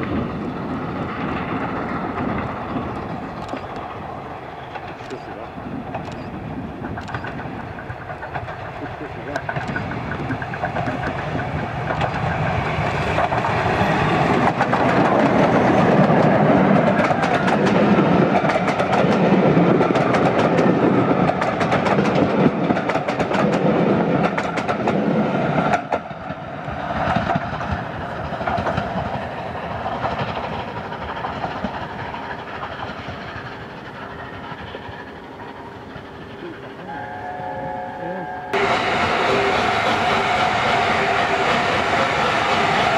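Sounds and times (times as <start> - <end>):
steam train rumble and clatter: 0.0 - 42.9
wheels clicking over rail joints: 5.9 - 36.8.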